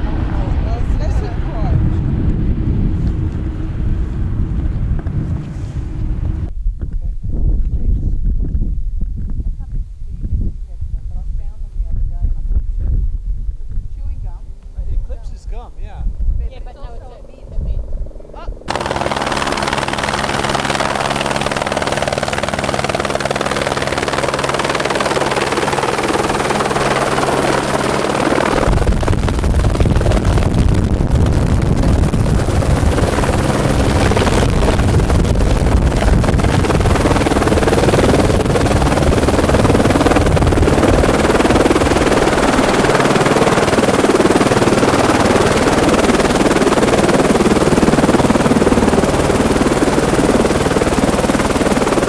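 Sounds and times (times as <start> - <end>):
loud rough noise: 18.6 - 48.7.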